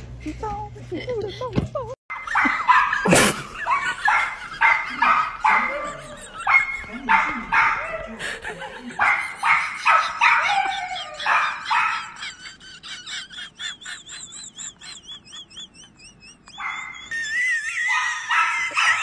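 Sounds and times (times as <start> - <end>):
small dog barking: 2.2 - 8.1, 9.0 - 12.2, 17.8 - 19.0
dog yipping and whining: 9.6 - 19.0.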